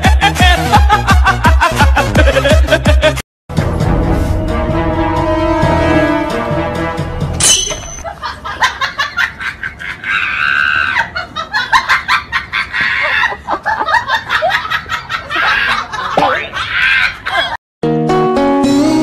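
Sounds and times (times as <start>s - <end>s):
people laughing: 0.0s - 3.2s, 8.0s - 17.6s.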